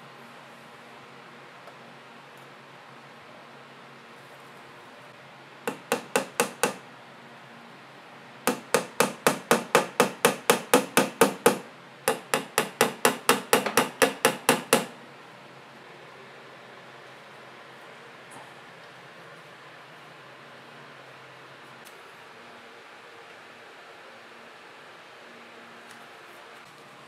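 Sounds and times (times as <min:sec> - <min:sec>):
hammer driving nails into wood: 0:05.7 - 0:06.8, 0:08.5 - 0:15.0.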